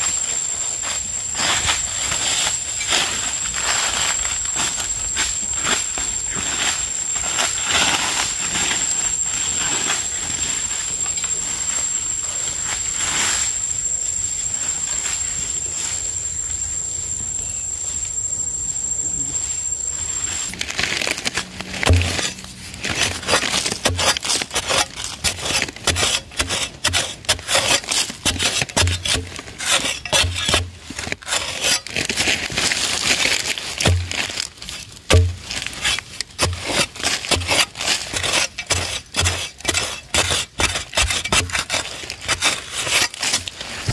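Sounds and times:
high whine: 0.0s - 43.9s
rustling: 20.2s - 43.9s
loose earth crumbling: 20.3s - 43.9s
blade chopping into dry soil: 21.6s - 32.8s, 33.8s - 43.9s.

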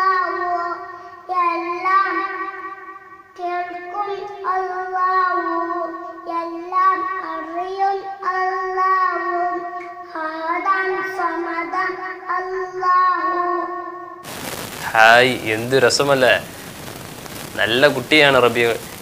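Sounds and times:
young child singing: 0.0s - 14.2s.

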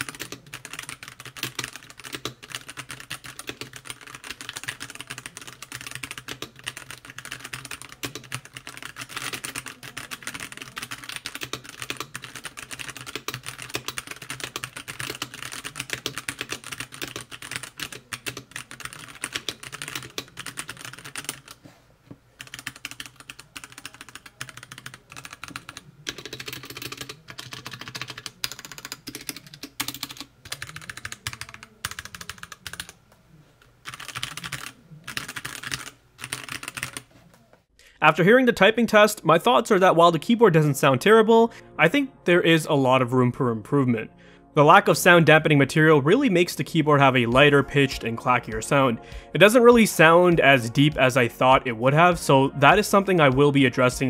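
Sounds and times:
keyboard stabilizers rattling: 0.0s - 21.6s
mechanical keyboard typing: 0.0s - 21.6s, 22.4s - 33.0s, 33.8s - 37.1s.

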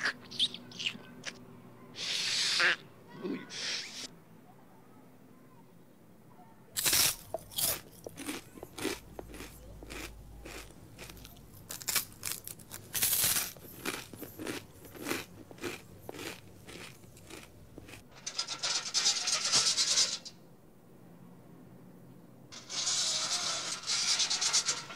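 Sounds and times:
person chewing crunchy food: 6.8s - 18.0s
harsh scraping: 11.0s - 20.4s, 22.6s - 24.9s.

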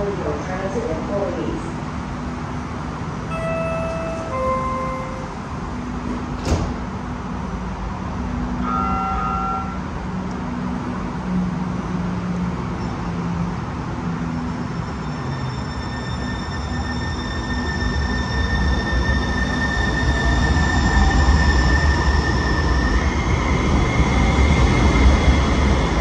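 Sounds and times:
electric train humming: 0.0s - 26.0s
two-note chime: 3.3s - 5.4s, 8.6s - 9.9s.

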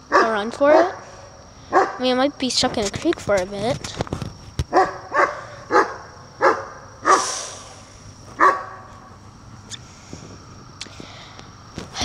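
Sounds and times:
dog barking: 0.1s - 1.0s, 1.7s - 2.0s, 4.7s - 7.3s, 8.4s - 8.9s.

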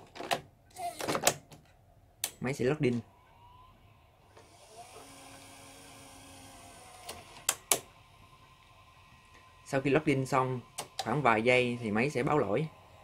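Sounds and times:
loading motor whining: 3.1s - 13.0s.

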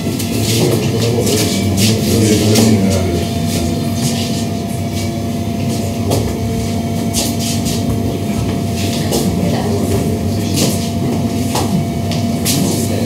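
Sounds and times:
machine hum with two tones: 0.0s - 13.0s.

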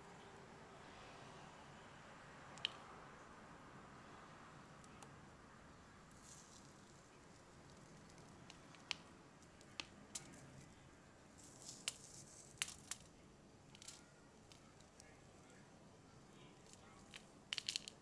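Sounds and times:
biscuit snapping and crackling: 6.6s - 10.7s, 11.6s - 15.2s.

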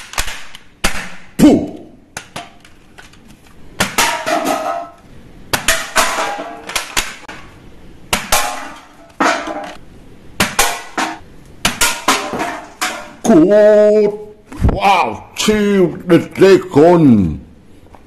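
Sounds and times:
toy guns firing: 0.0s - 1.2s.

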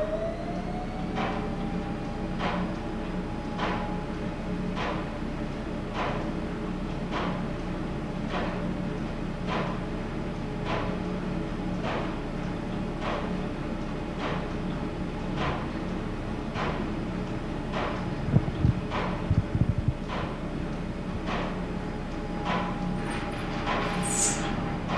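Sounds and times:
machinery humming: 0.0s - 5.8s, 16.2s - 24.9s
repeating sharp click: 23.7s - 24.6s.

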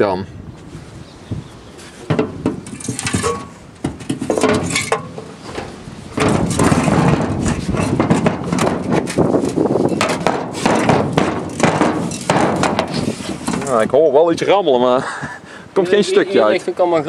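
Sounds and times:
metallic knocks: 2.0s - 13.8s
debris rattling inside silencer: 2.1s - 13.8s.

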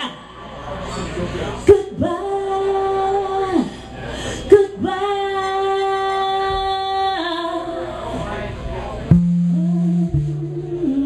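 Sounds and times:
woman singing through pa: 1.7s - 3.7s, 4.5s - 7.8s, 9.3s - 11.0s.

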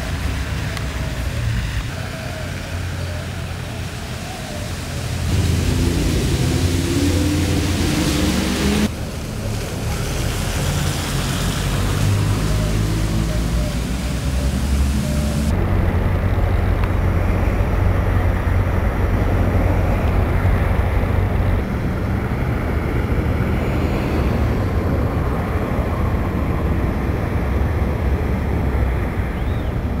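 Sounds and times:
car engines humming: 0.0s - 30.0s
tyres on wet pavement: 0.0s - 30.0s.

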